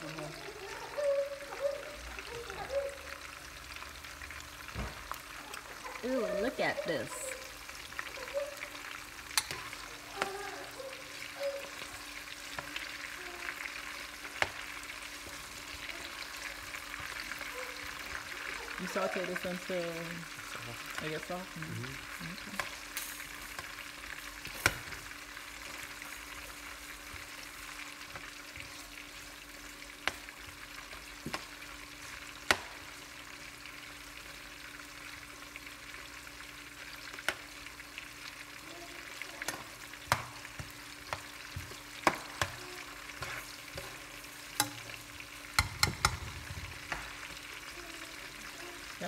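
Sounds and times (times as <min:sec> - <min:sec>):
food sizzling in a frying pan: 0:00.0 - 0:49.0
metal spoon clicking against pan: 0:09.4 - 0:09.6, 0:45.6 - 0:46.2.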